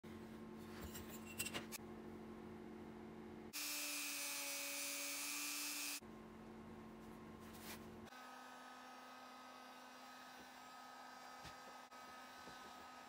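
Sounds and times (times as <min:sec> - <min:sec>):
rotary tool whining on leather: 0:09.8 - 0:13.0.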